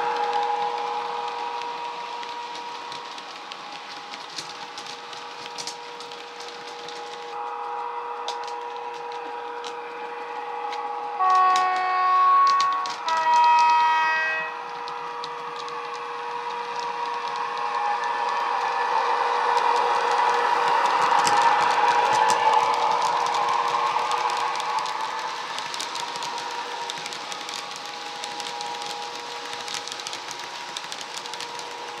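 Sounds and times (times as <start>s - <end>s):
light clicks of model train: 0.0s - 32.0s
loud horn blasts: 7.3s - 25.6s.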